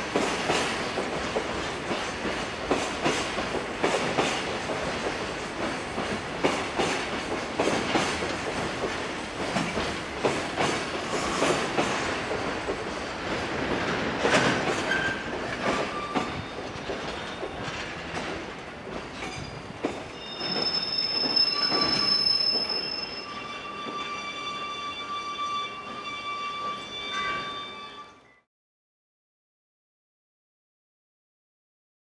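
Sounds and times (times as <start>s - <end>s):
train wheels clacking over rail joints: 0.0s - 22.7s
high steady brake squealing: 20.2s - 28.4s.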